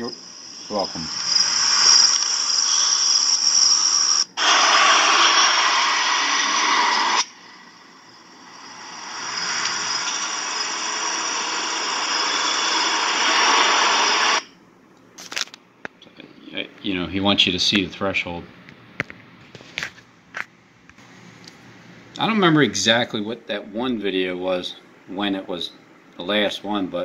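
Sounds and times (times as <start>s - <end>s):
crickets chirping: 0.0s - 4.4s, 7.4s - 14.2s
loud steady rushing hiss: 0.0s - 14.5s.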